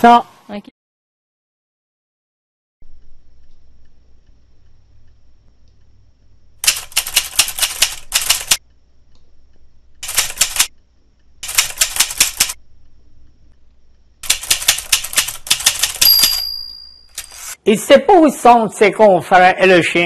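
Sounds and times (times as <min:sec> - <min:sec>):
typewriter keys clattering: 0:06.6 - 0:08.6, 0:10.0 - 0:10.7, 0:11.4 - 0:12.6, 0:14.2 - 0:16.4.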